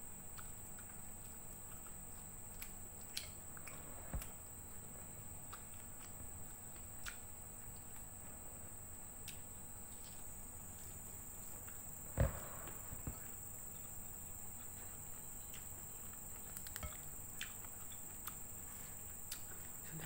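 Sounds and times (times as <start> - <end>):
person chewing: 0.3 - 8.3, 9.2 - 13.1, 13.7 - 19.8
soft mouth clicks: 7.0 - 7.3.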